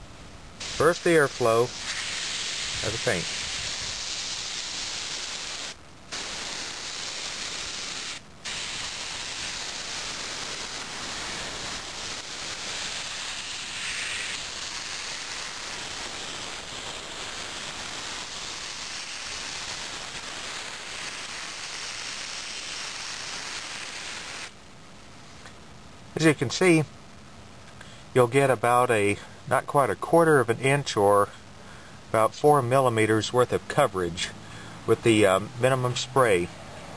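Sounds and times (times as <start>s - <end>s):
airbrush spraying hiss: 0.6s - 24.6s.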